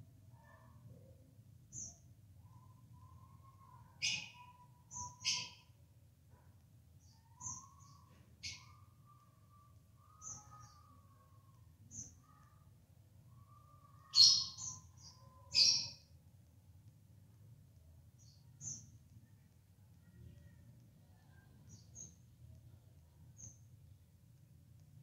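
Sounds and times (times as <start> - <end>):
budgerigars chirping: 15.6 - 15.9.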